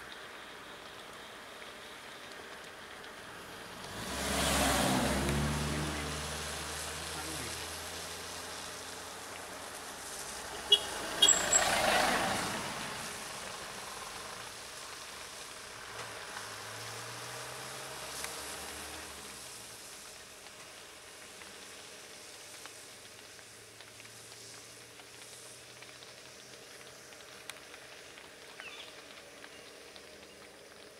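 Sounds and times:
vehicles passing on wet road: 0:00.0 - 0:30.9
low engine hum: 0:00.2 - 0:22.6.

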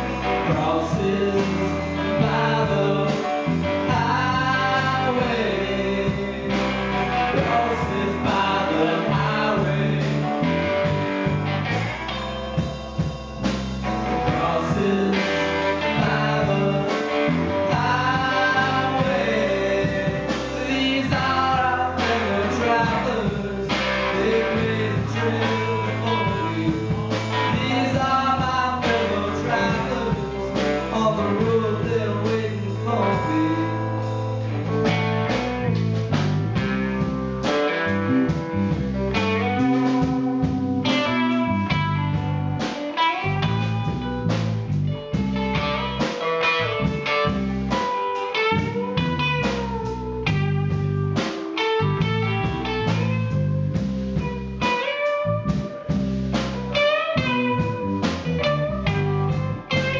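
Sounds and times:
man singing: 0:00.0 - 0:11.0, 0:13.9 - 0:34.8
drum kit: 0:00.0 - 0:59.9
electric guitars: 0:00.0 - 0:59.9.

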